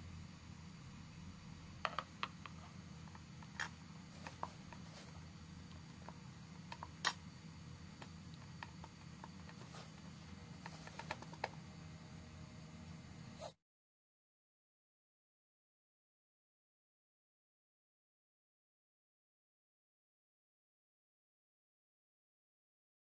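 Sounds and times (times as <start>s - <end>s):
low steady hum: 0.0s - 13.6s.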